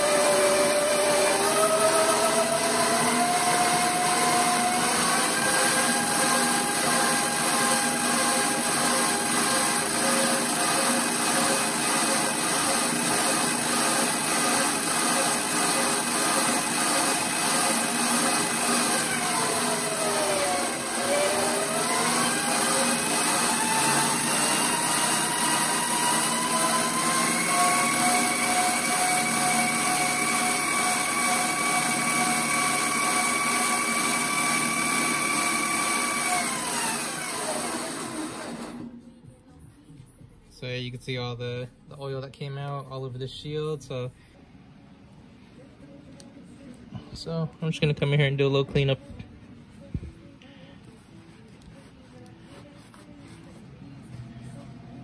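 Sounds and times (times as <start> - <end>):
lathe chuck whirring: 0.0 - 39.0.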